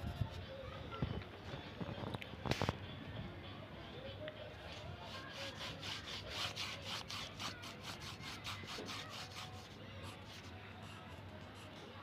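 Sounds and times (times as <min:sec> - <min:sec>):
pencil scratching on paper: 0:05.0 - 0:11.8.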